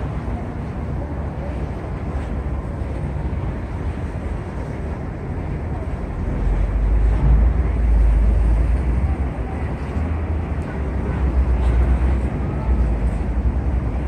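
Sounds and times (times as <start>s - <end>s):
ferry engine rumble: 0.0s - 14.0s.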